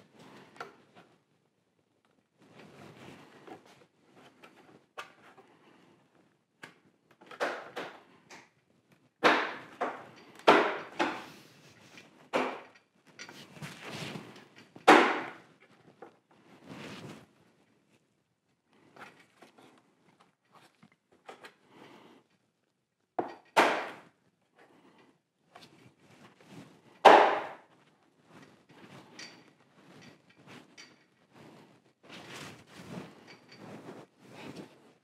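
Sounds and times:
plastic parts knocking and snapping: 6.6 - 8.6, 9.2 - 11.3, 12.3 - 12.9, 14.4 - 16.2, 23.2 - 24.1
handling rustle: 12.9 - 14.8, 15.4 - 18.1, 27.7 - 35.0.

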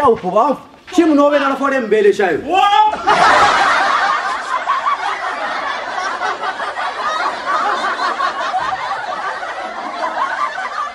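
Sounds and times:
people laughing together: 2.9 - 10.9.

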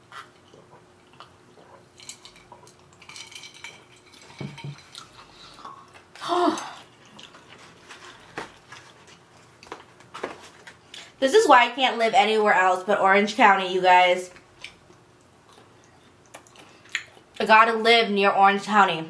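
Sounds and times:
clicks and rattles of containers: 2.0 - 5.1
person humming: 6.2 - 6.8.

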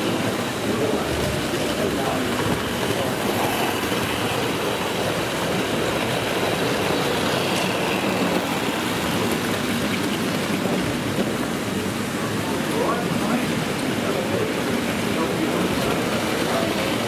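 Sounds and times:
crowd hubbub in a hall: 0.0 - 17.0
model train running on track: 0.0 - 17.0.

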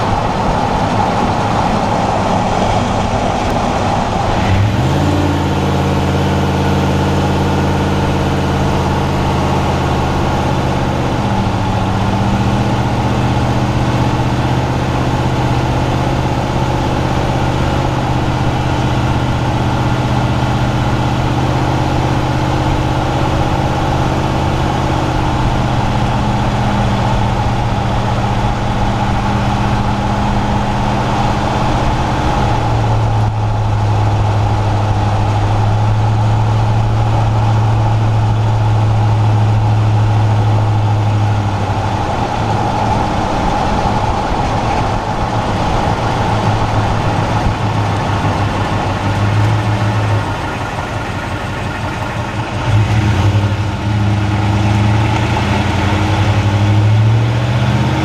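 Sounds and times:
car engine droning: 0.0 - 58.0
tyre and road noise: 0.0 - 58.0.

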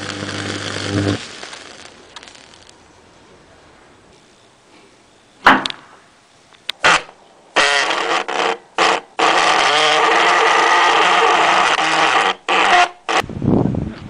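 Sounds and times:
small pops: 0.0 - 2.8, 4.1 - 13.2
spark gap crackling buzz: 0.0 - 2.9, 4.2 - 13.3
sharp bang: 5.4 - 6.1.

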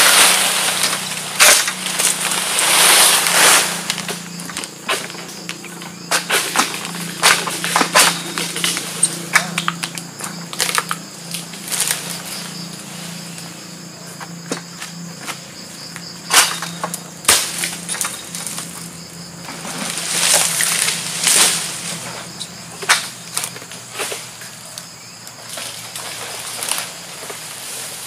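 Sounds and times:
rustling scrape: 0.0 - 5.1
insect hum: 0.0 - 28.0.

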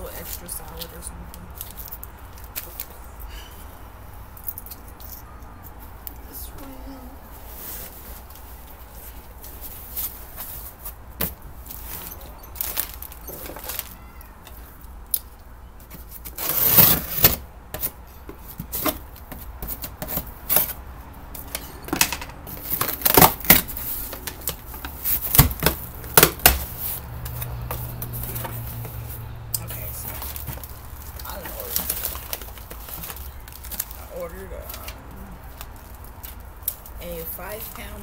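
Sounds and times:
cardboard box being cut open: 16.3 - 17.4.

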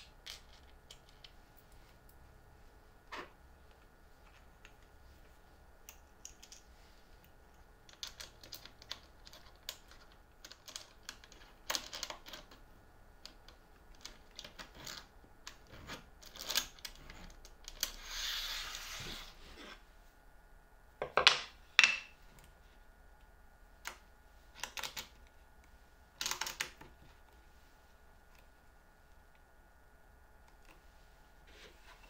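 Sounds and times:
plastic parts clicking and tapping: 7.8 - 12.6, 26.2 - 27.0.

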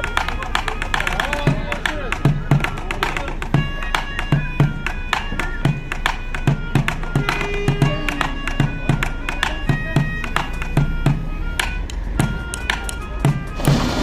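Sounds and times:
reedy wind instrument melody: 0.0 - 14.0
bucket drumming with sticks: 12.2 - 14.0.

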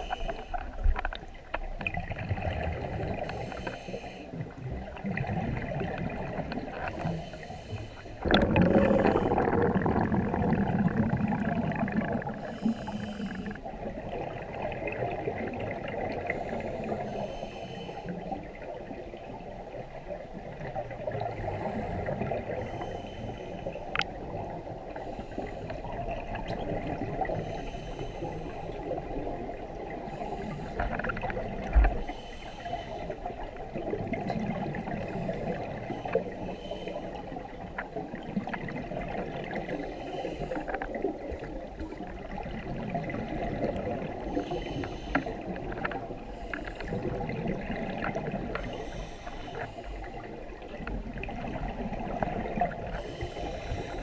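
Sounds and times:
diver breathing through regulator: 0.0 - 0.8, 3.1 - 4.4, 6.8 - 10.2, 12.2 - 13.7, 16.2 - 18.3, 21.3 - 23.7, 24.9 - 26.0, 27.2 - 29.0, 30.0 - 33.3, 34.9 - 37.3, 39.7 - 42.2, 44.2 - 47.4, 48.0 - 50.4, 52.7 - 54.0
underwater rumble: 0.0 - 54.0
rush of exhaled bubbles: 4.7 - 7.0, 8.2 - 13.0, 33.2 - 36.0, 40.9 - 46.2, 46.9 - 49.0.

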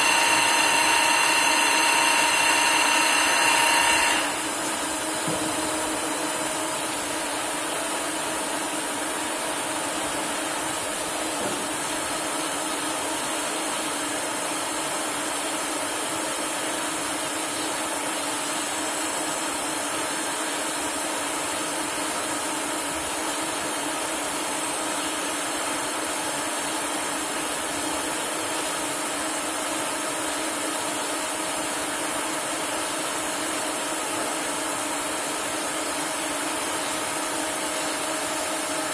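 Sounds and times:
lathe machining metal: 0.0 - 13.3.

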